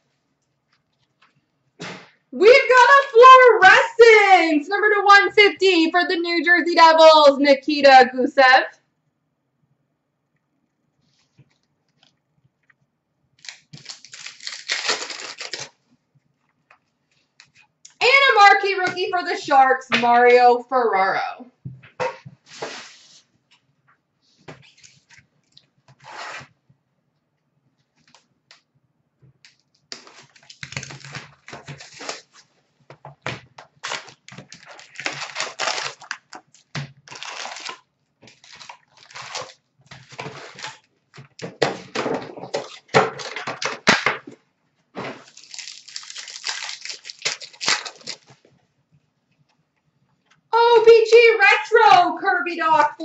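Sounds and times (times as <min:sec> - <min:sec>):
foil wrappers crinkling and tearing: 0:13.4 - 0:15.8, 0:29.9 - 0:32.5, 0:33.6 - 0:40.9, 0:45.1 - 0:48.4.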